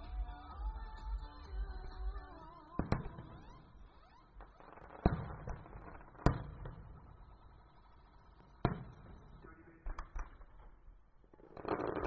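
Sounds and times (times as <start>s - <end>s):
music: 0.0s - 3.2s
distant fireworks bursting: 1.6s - 12.0s.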